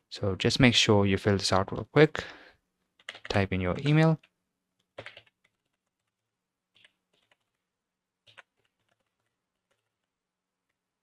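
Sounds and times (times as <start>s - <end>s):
keystrokes on computer keyboard: 3.0s - 7.6s, 8.2s - 10.8s.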